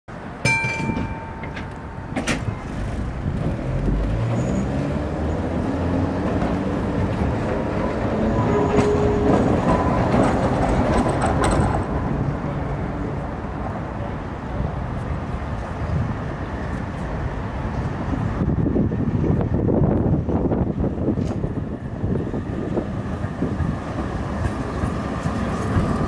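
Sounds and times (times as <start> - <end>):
street noise: 0.1 - 26.0
ringing tone: 0.4 - 2.4
tram motor whine: 0.8 - 14.2.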